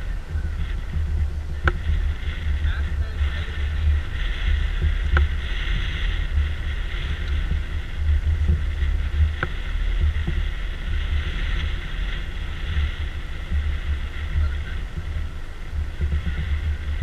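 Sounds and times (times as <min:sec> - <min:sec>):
steady high hiss: 0:00.0 - 0:17.0
wind rumbling on microphone: 0:00.0 - 0:17.0.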